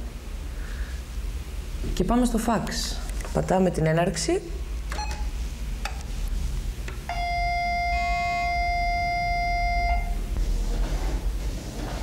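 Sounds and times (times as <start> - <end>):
fax handshake tone: 7.1 - 10.2
short beep: 7.1 - 10.2.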